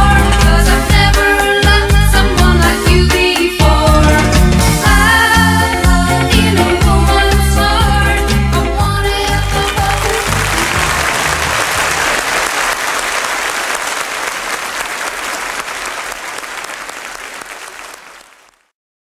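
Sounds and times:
band playing: 0:03.9 - 0:18.5
audience applauding: 0:09.2 - 0:18.7.

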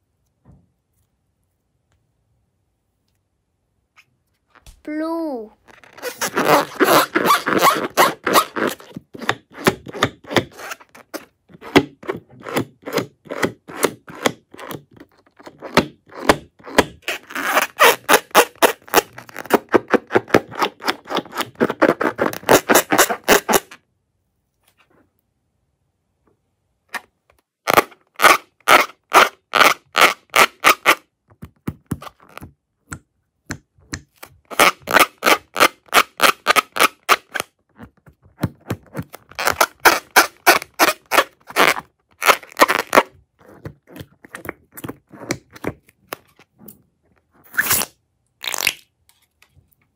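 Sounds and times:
fingers rubbing a balloon: 0:05.7 - 0:23.8, 0:27.7 - 0:31.1, 0:34.4 - 0:46.2.

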